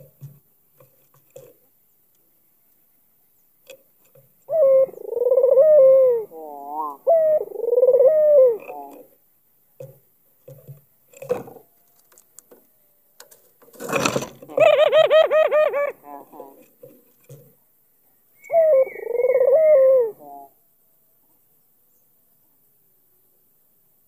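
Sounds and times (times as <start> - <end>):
dove cooing: 4.1 - 9.2, 14.3 - 17.4, 18.4 - 20.6.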